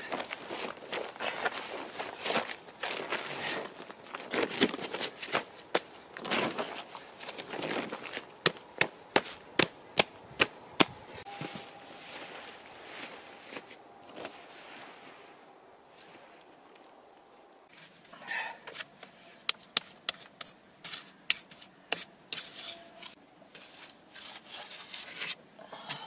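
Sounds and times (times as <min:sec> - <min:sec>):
tarp rustling and crinkling: 0:00.0 - 0:08.4, 0:11.0 - 0:16.7.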